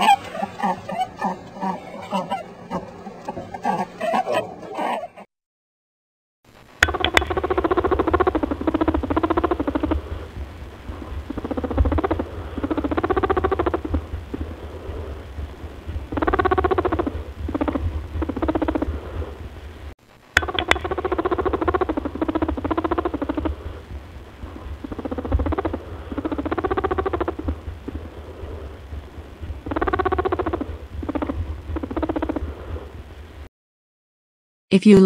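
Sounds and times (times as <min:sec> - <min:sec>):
low hum: 0:06.5 - 0:33.5
rabbit purring: 0:06.8 - 0:19.8, 0:20.4 - 0:33.3.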